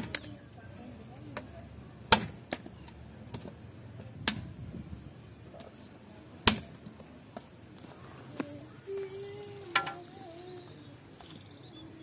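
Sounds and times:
cleaver chopping wood: 0:02.1 - 0:02.6, 0:06.4 - 0:06.8.

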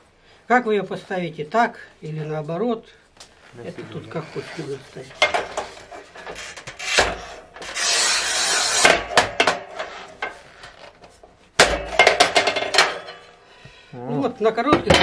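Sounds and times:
tile cutter wheel scraping: 0:05.5 - 0:09.0.

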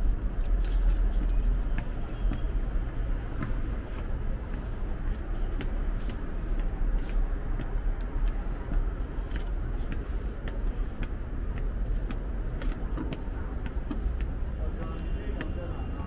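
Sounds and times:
road traffic hum: 0:00.0 - 0:16.0.

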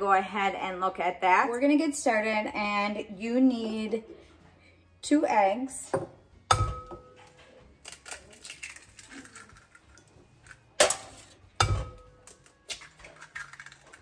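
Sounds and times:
eggshell crackling: 0:07.8 - 0:10.6, 0:12.3 - 0:14.0
egg cracking on glass bowl: 0:07.8 - 0:14.0.

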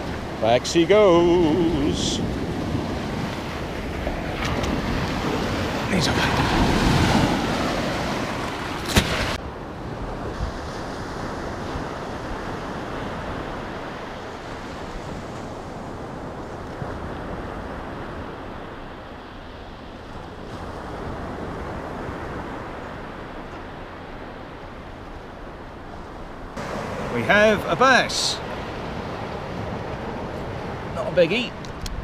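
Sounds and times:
wind on microphone: 0:00.0 - 0:18.6
waves breaking on sandy beach: 0:00.0 - 0:32.0.

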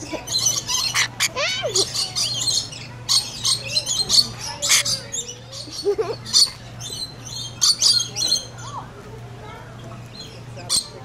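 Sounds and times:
parrot chattering and screeching: 0:00.3 - 0:06.6.

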